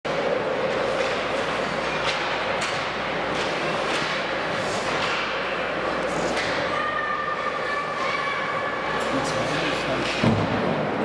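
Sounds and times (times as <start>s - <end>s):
arena noise: 0.1s - 11.0s
sharp knocks of sticks and puck: 0.9s - 5.5s, 6.3s - 6.6s.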